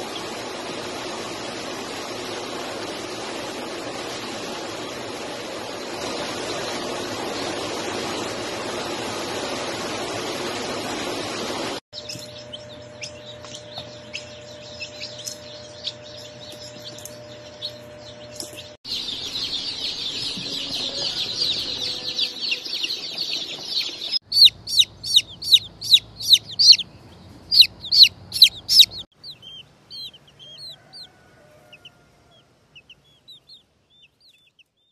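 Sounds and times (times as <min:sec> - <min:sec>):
steady rushing noise: 0:00.0 - 0:11.8
chicks peeping: 0:05.5 - 0:08.2, 0:12.0 - 0:34.9.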